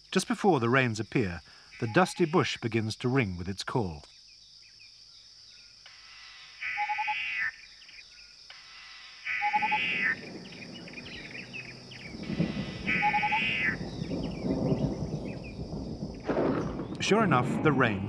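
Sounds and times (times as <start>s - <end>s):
high insect drone: 0.0s - 16.9s
birds calling: 1.4s - 2.6s, 4.0s - 17.3s.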